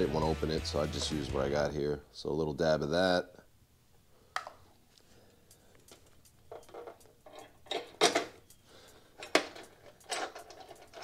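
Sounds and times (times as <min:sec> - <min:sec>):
light metal scraping: 0:05.8 - 0:11.0
metallic clinks: 0:05.8 - 0:11.0.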